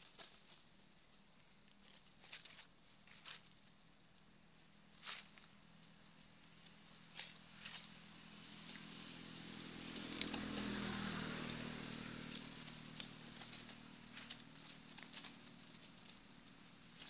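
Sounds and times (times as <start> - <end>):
passing engine: 5.4 - 17.0.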